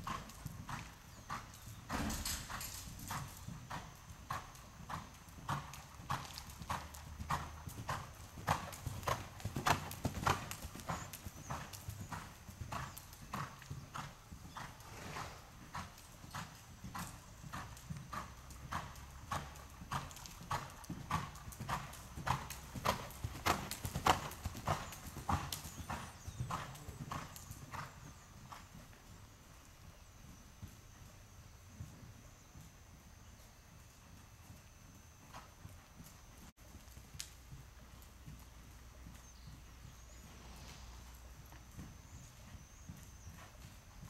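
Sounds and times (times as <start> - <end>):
horse hooves thudding on sand: 0.0 - 29.1.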